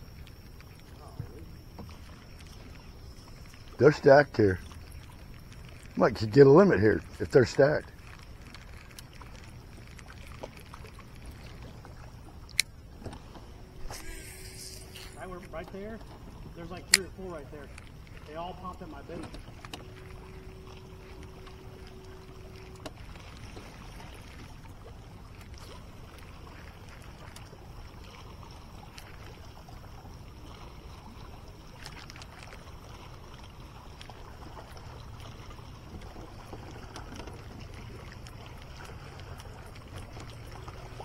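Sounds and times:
boat engine hum: 0.0 - 41.0
thin steady tone: 13.5 - 24.3.

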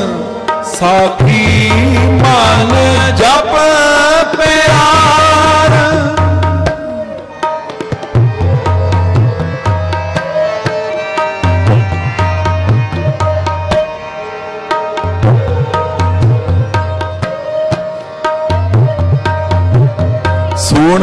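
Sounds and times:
person singing: 0.0 - 7.1
harmonium notes: 0.0 - 21.0
tabla rhythm: 0.0 - 21.0.

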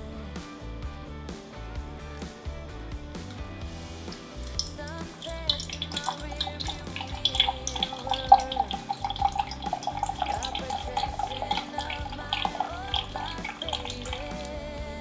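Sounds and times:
background music: 0.0 - 15.0
liquid pouring into plastic jug: 3.9 - 14.6.

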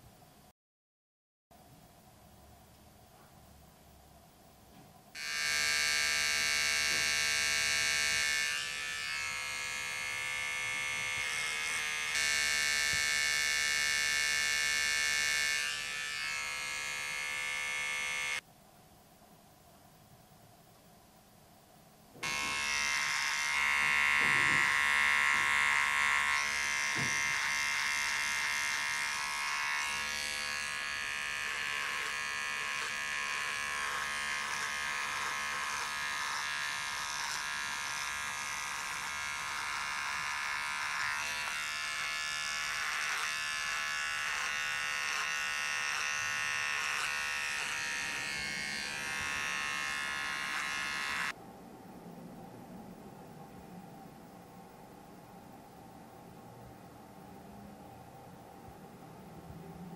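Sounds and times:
electric hair clippers buzzing: 5.2 - 18.4, 22.2 - 51.4.

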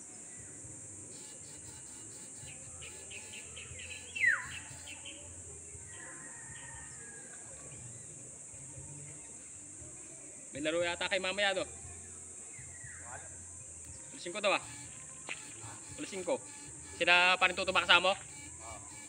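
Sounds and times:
insects buzzing: 0.0 - 19.0
birds chirping: 1.1 - 5.4, 13.8 - 19.0
bird call sliding downward: 1.2 - 5.0.

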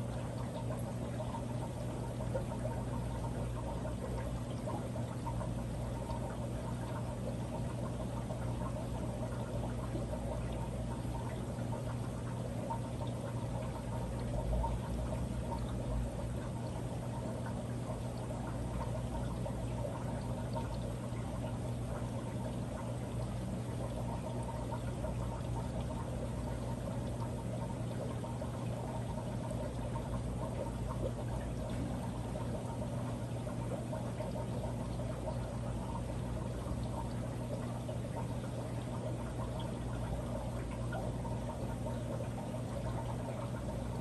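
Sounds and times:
low pump hum: 0.0 - 44.0
water trickling: 0.0 - 44.0.

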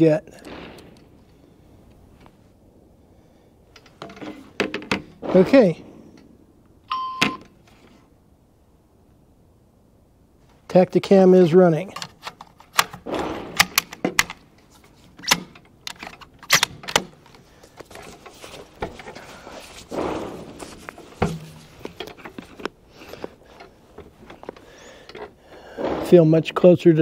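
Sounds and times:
rustling: 11.5 - 27.0
rifle handling clicks: 11.9 - 17.9.

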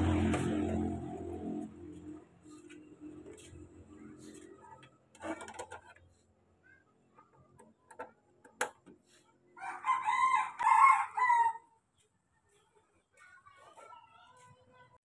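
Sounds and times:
rooster crowing: 9.6 - 11.7.

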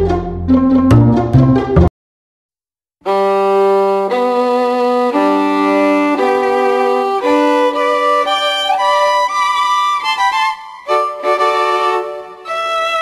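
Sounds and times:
violin playing slow melody: 3.0 - 13.0.

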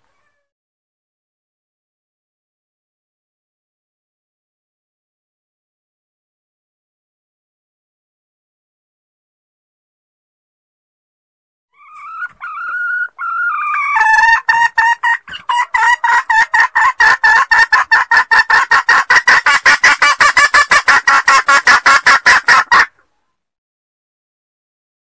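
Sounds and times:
hen clucking: 11.8 - 23.1.

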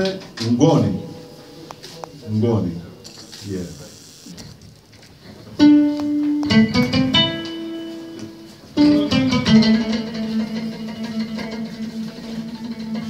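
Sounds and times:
plucked lute notes: 5.4 - 13.0.

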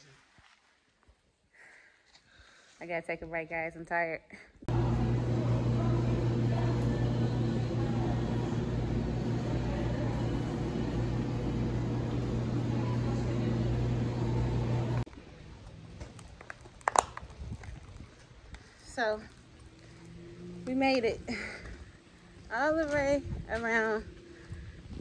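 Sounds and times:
outdoor ambience: 0.0 - 25.0
machinery humming: 4.7 - 15.1.

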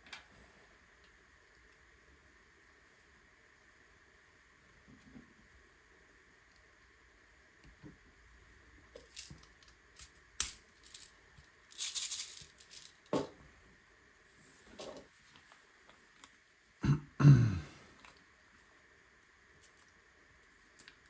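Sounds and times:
plastic bricks rattling and clicking: 9.0 - 13.1.

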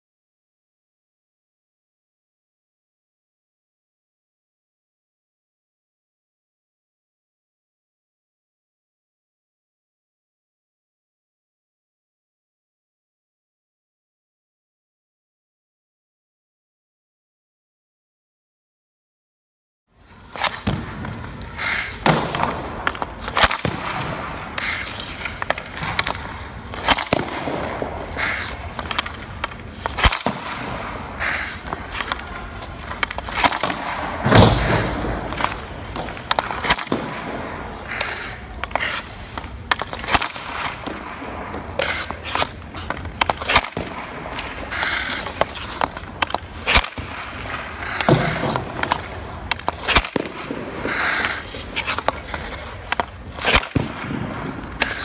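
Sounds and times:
skate blades scraping ice: 20.0 - 55.0
puck hitting goalie pads: 20.3 - 55.0
stick cracking on puck: 20.3 - 55.0.

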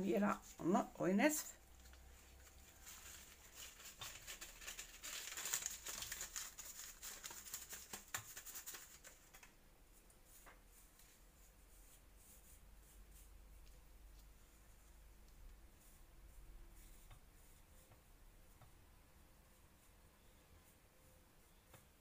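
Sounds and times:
paper sachet rustling: 1.7 - 9.5.

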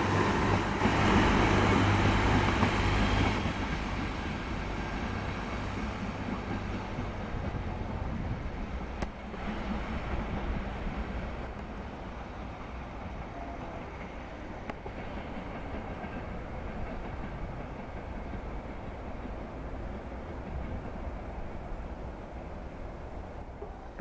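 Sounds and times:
diesel railcar rumbling: 0.0 - 24.0.

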